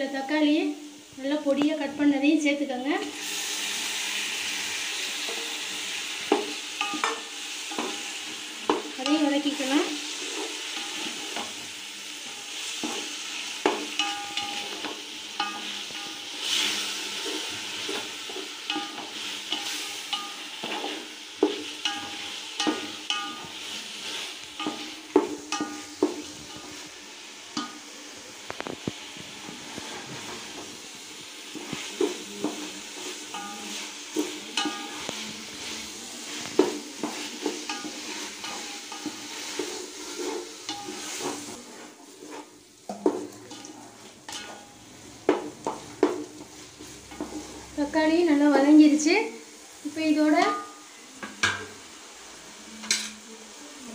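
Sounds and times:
vegetables sizzling in oil: 0.0s - 53.9s
spoon scraping and knocking pot: 6.2s - 9.3s, 12.3s - 26.9s, 31.5s - 35.1s, 36.4s - 41.6s, 42.2s - 47.6s.

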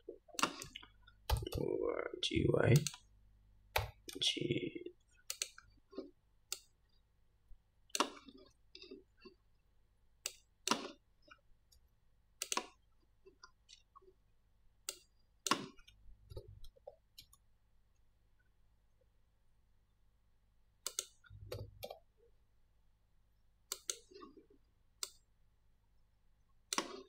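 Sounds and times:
computer mouse clicks: 0.4s - 1.6s, 2.7s - 3.1s, 5.2s - 5.7s, 6.5s - 6.7s, 10.2s - 11.0s, 12.4s - 12.8s, 14.8s - 17.4s, 20.8s - 22.1s, 23.7s - 24.2s, 25.0s - 25.3s, 26.7s - 27.0s
keyboard key presses: 0.4s - 1.6s.

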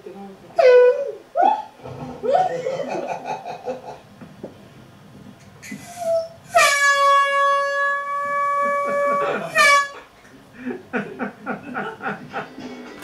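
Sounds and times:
air horn blasting: 5.7s - 10.1s.

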